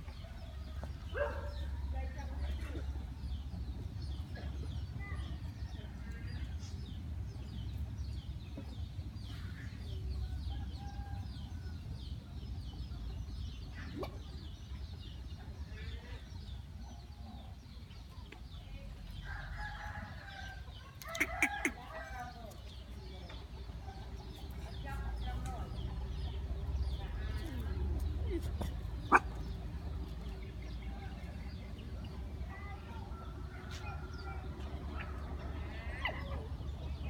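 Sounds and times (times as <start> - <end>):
chickens clucking: 20.8 - 32.3.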